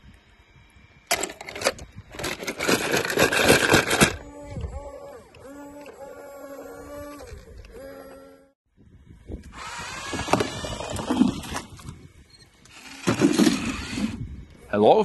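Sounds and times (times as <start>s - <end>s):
steady hum-like tone: 0.0s - 10.0s
plastic tracks clattering: 1.1s - 4.2s
small electric motor whirring: 1.2s - 8.6s, 9.2s - 14.8s.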